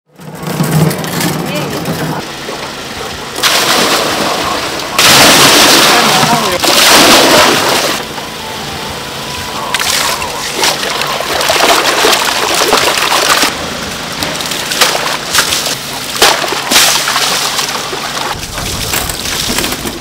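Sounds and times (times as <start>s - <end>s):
water splashing: 3.3s - 8.1s, 9.7s - 13.6s, 14.4s - 20.0s.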